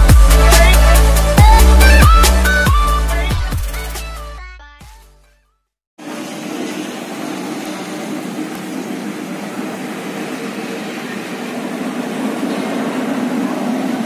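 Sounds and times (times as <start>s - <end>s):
diesel locomotive engine drone: 6.0s - 14.0s.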